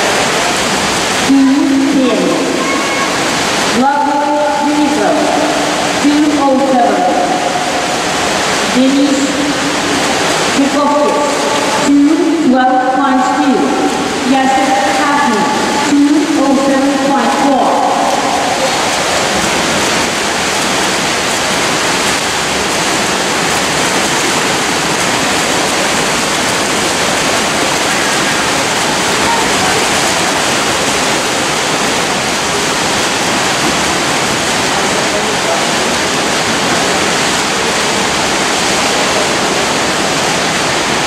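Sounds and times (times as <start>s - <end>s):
swimmers splashing: 0.0s - 41.0s
din of voices: 26.9s - 31.4s.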